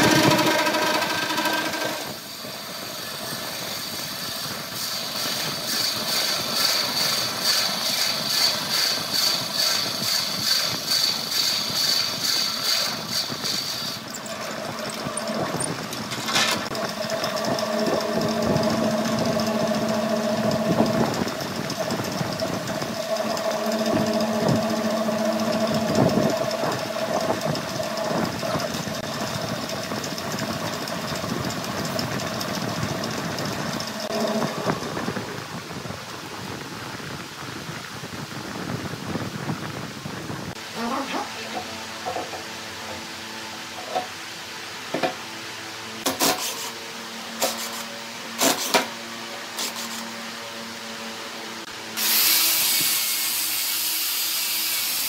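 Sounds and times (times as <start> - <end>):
lathe humming: 0.0 - 2.4, 7.6 - 35.4
wood lathe whining: 0.0 - 35.4.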